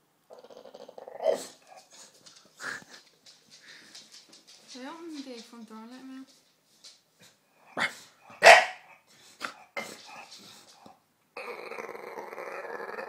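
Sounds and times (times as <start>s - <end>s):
dog growling: 0.3s - 3.0s, 11.4s - 13.0s
dog barking: 7.8s - 9.0s.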